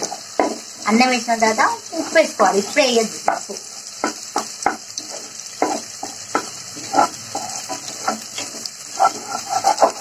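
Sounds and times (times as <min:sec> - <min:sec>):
hot oil sizzling: 0:00.0 - 0:10.0
spatula scraping a pot: 0:04.6 - 0:10.0.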